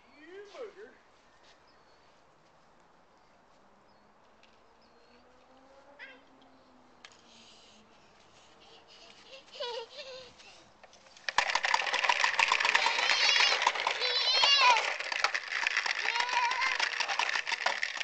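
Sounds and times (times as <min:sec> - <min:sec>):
child calling: 0:06.0 - 0:06.3, 0:12.6 - 0:15.0, 0:15.9 - 0:16.9
popper toy balls rattling: 0:11.1 - 0:18.0.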